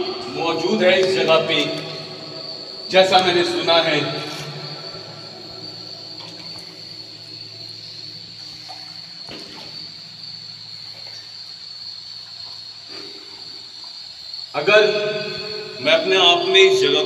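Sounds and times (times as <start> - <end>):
low hum: 0.0 - 12.5
steady high-pitched whine: 0.0 - 17.0.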